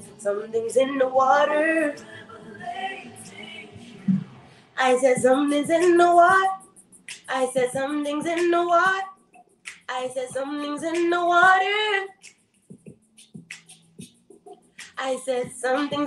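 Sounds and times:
woman singing: 0:00.0 - 0:04.0, 0:04.8 - 0:06.6, 0:07.3 - 0:09.2, 0:09.9 - 0:12.2, 0:15.0 - 0:16.0.

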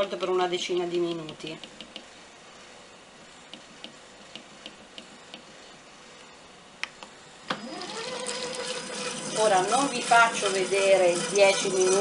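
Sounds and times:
motor spinning up with whine: 0:07.4 - 0:11.9.

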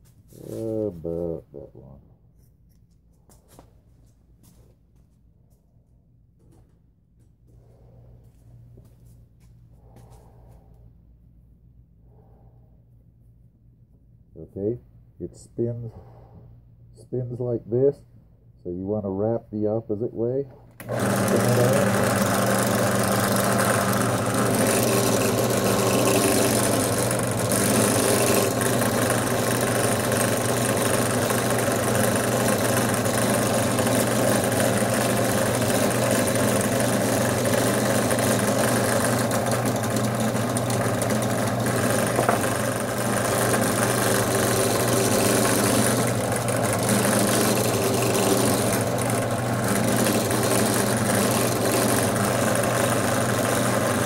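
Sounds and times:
drill press motor running: 0:20.8 - 0:54.0.

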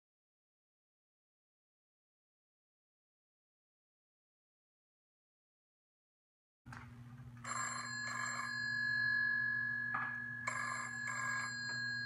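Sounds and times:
telephone ringing: 0:07.4 - 0:12.0.

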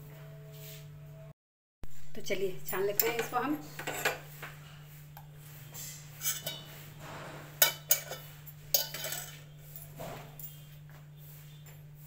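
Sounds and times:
metal kitchenware clinking: 0:02.6 - 0:04.3, 0:06.2 - 0:06.8, 0:07.5 - 0:10.6.

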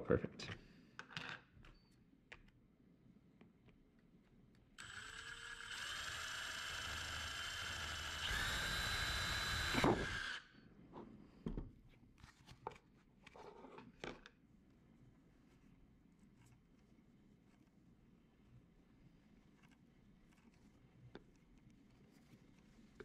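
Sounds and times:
cordless drill whining: 0:04.8 - 0:10.5.

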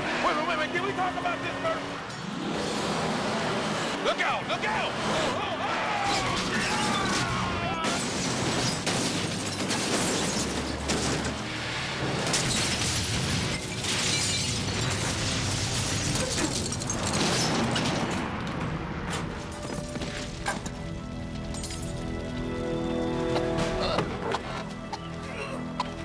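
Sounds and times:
crashing metal: 0:06.0 - 0:20.7
glass shattering: 0:06.1 - 0:11.4, 0:12.2 - 0:18.2, 0:21.5 - 0:22.0.

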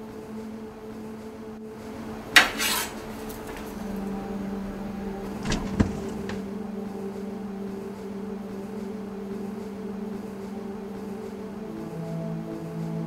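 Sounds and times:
steady low hum: 0:00.0 - 0:13.0
short knocks: 0:05.4 - 0:06.4.

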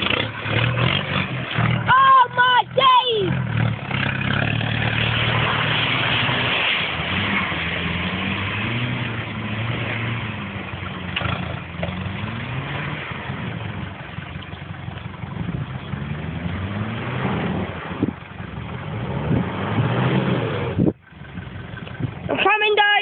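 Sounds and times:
off-road vehicle engine revving: 0:00.0 - 0:22.4.

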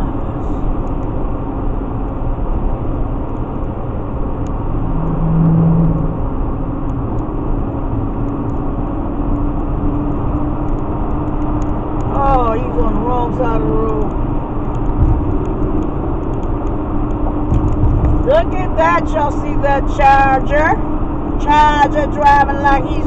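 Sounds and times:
road and engine noise: 0:00.0 - 0:23.0
low even drone: 0:02.5 - 0:10.8.

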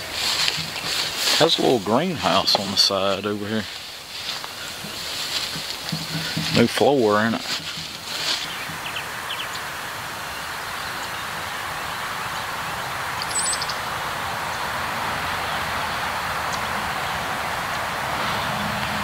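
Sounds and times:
grass and trees rustling: 0:00.0 - 0:19.0
bird call: 0:13.2 - 0:13.9.

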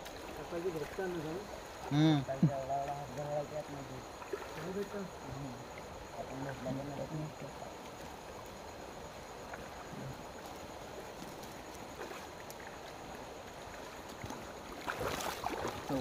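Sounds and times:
water running over stream bed: 0:00.0 - 0:16.0
faint ticks: 0:09.4 - 0:14.5.

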